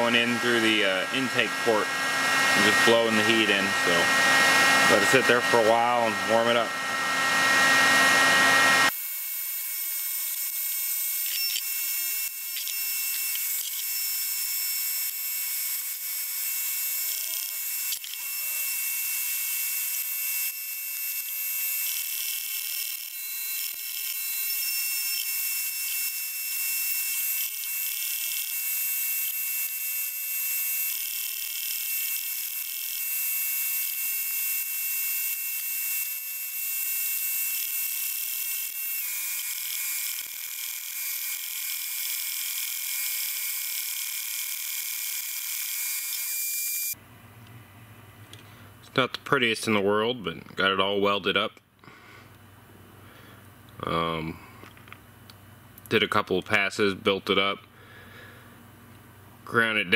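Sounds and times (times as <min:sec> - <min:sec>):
heat gun high whine: 0:00.0 - 0:47.0
welding arc hissing and crackling: 0:08.9 - 0:47.0.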